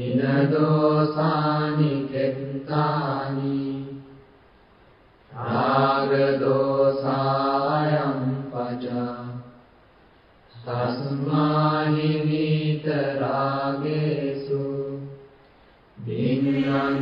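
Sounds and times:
low voice chanting: 5.3s - 9.4s, 16.0s - 17.0s.

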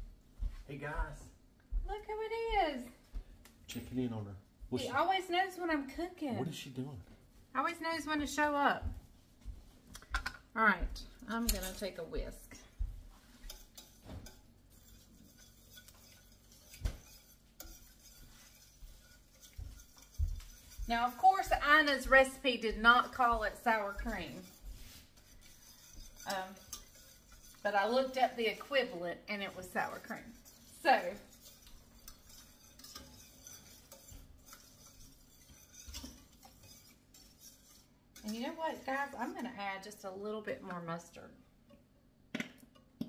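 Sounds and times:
whisk stirring sauce in a skillet: 12.8s - 41.9s
whisk clinking against pan: 13.3s - 39.9s.

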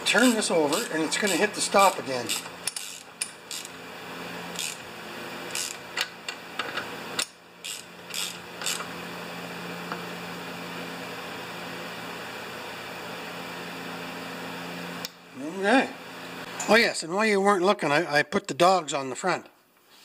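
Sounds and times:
steady low hum: 0.0s - 14.3s
ratchet wrench clicking: 0.7s - 3.7s, 4.6s - 4.8s, 5.5s - 5.8s, 7.2s - 8.9s.

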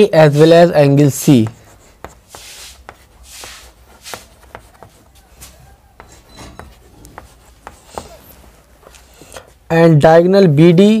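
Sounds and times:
chalk scratching: 0.0s - 9.7s
chalk tapping on chalkboard: 1.2s - 9.6s.

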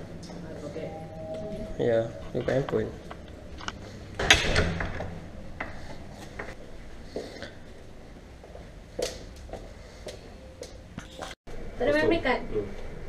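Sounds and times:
low steady hum: 0.0s - 8.4s.

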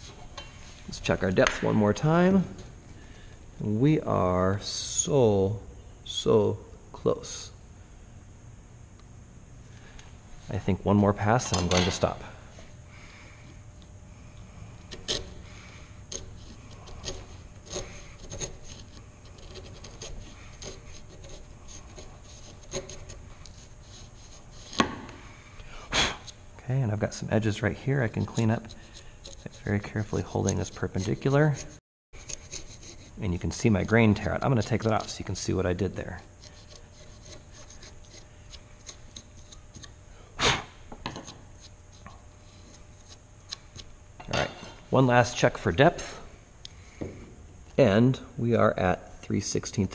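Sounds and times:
chisel scraping wood: 14.8s - 15.4s, 16.1s - 25.1s, 28.0s - 40.0s.

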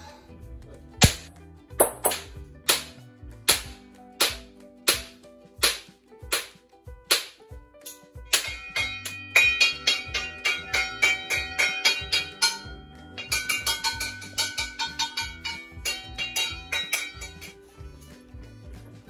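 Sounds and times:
pots and pans banging: 8.3s - 17.6s.

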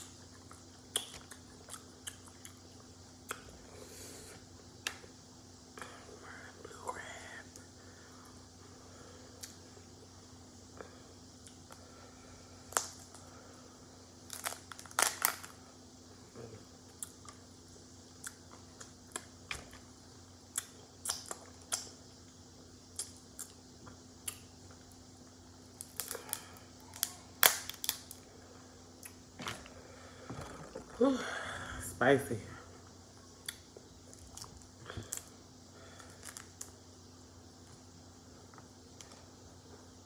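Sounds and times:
crab shells cracking: 14.3s - 15.6s, 25.8s - 28.2s.

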